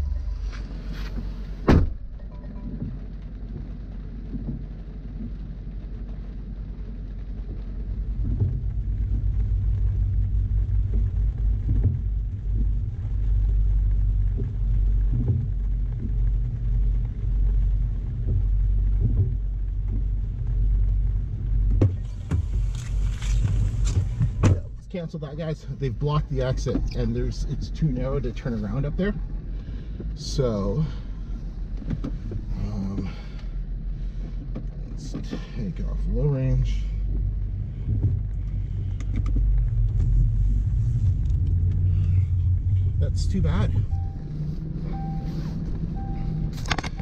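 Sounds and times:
engine idling hum: 0.0s - 47.0s
light rain: 0.0s - 47.0s
windscreen wipers sweeping: 0.0s - 47.0s
car door thud: 1.6s - 2.2s, 21.8s - 24.8s.

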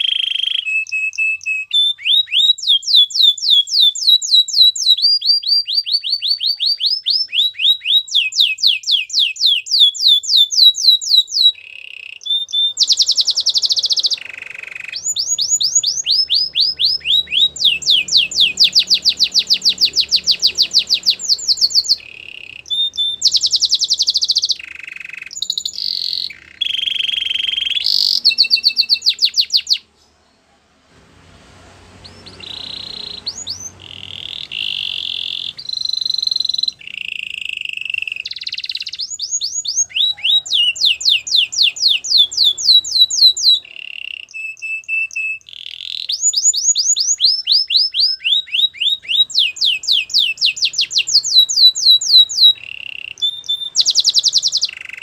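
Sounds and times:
canary singing trills: 0.0s - 30.5s, 31.8s - 55.0s.

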